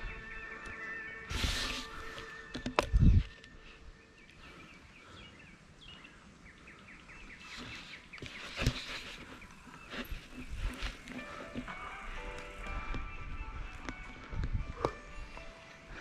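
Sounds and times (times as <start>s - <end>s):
bird chirping: 0.0s - 16.0s
mountain bike riding noise: 1.3s - 3.7s, 7.2s - 16.0s.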